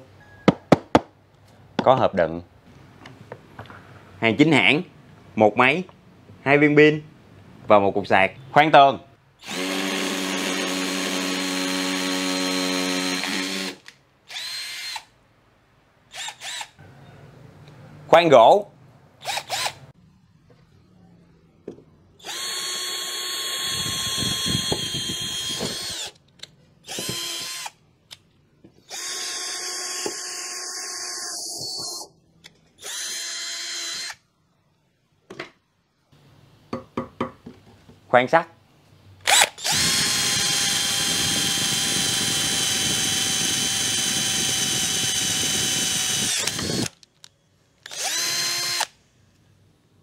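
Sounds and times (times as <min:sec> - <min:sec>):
cordless drill motor whine: 0:09.4 - 0:15.0, 0:22.2 - 0:26.2, 0:26.9 - 0:27.8, 0:28.9 - 0:32.0, 0:32.8 - 0:34.2, 0:39.3 - 0:47.0, 0:47.9 - 0:48.9
drill bit grinding in wood: 0:09.4 - 0:15.1, 0:16.2 - 0:16.7, 0:19.2 - 0:19.8, 0:22.2 - 0:26.2, 0:26.9 - 0:27.8, 0:28.9 - 0:32.0, 0:32.8 - 0:34.2, 0:39.3 - 0:47.0, 0:47.8 - 0:48.9.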